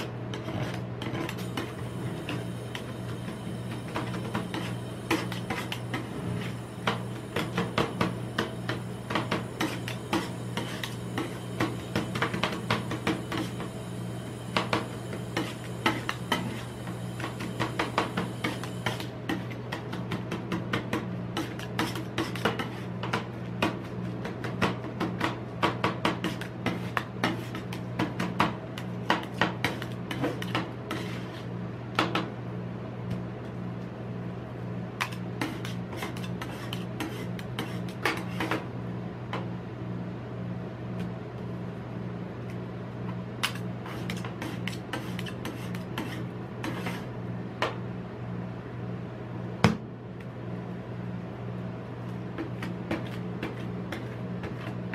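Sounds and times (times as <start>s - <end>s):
steady low hum: 0.0s - 25.7s.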